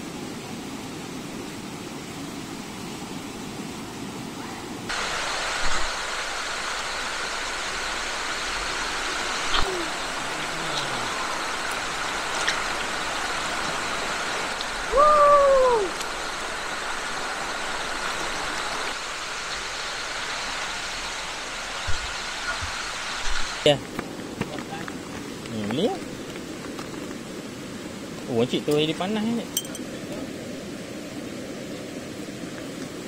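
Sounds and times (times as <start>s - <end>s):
stream rushing over stones: 0.0s - 33.0s
loud rising and falling call: 14.9s - 16.0s.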